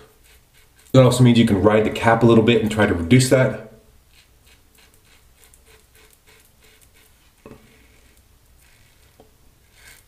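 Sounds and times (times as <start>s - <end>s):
razor scraping stubble: 0.0s - 1.9s, 4.1s - 10.0s.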